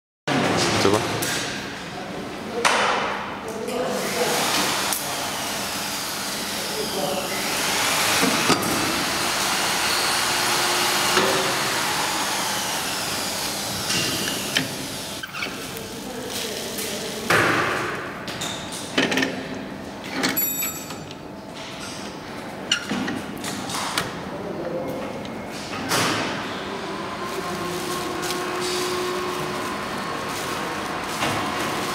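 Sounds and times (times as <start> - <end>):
plastic film rustling: 15.5 - 17.3, 27.1 - 31.9.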